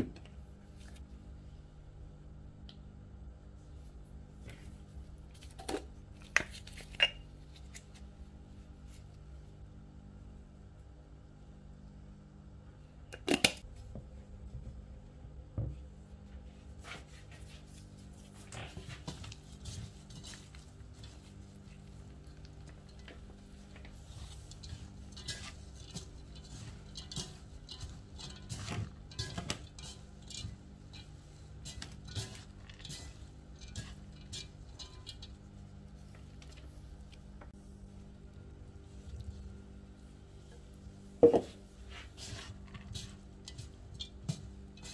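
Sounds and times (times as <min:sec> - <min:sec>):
steady low hum: 0:00.0 - 0:44.9
rice rustling: 0:16.8 - 0:44.9.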